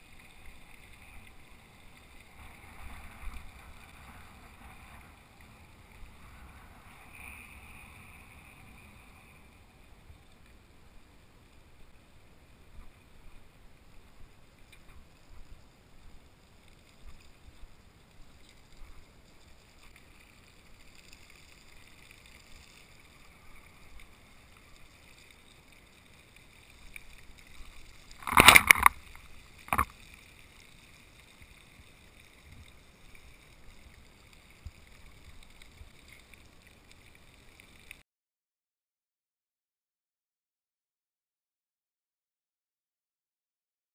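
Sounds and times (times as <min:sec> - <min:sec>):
bicycle rolling over pavement: 0:00.0 - 0:10.3.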